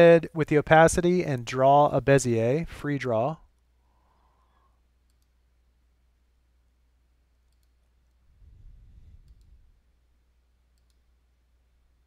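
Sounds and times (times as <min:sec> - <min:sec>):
computer mouse clicks: 0:05.0 - 0:05.4, 0:07.3 - 0:08.2, 0:09.2 - 0:09.6, 0:10.7 - 0:11.1
low hum: 0:08.0 - 0:10.5.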